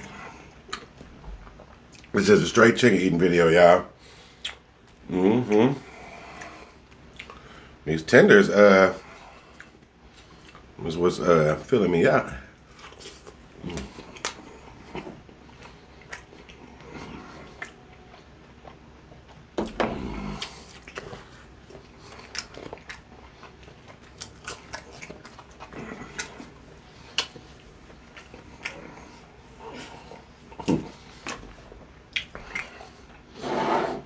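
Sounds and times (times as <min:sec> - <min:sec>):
chewing crispy fried chicken: 0:05.4 - 0:07.6, 0:09.0 - 0:10.8, 0:12.4 - 0:33.3.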